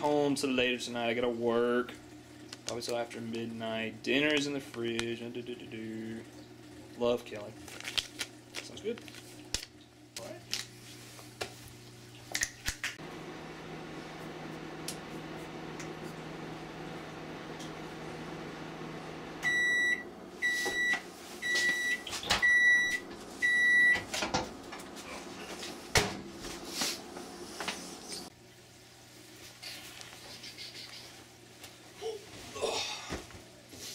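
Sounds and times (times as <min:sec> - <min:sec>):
microwave oven humming: 0:00.0 - 0:33.9
microwave beeps: 0:19.4 - 0:24.1.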